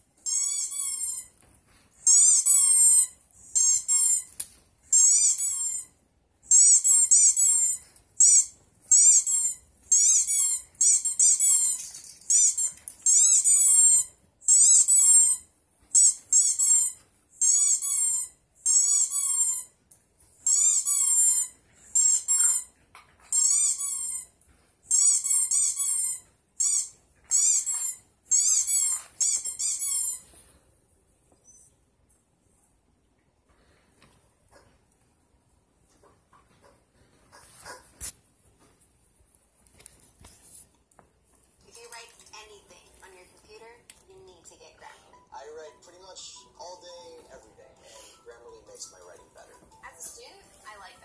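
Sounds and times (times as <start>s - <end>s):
squeaky toy squeaks: 0.2s - 30.4s.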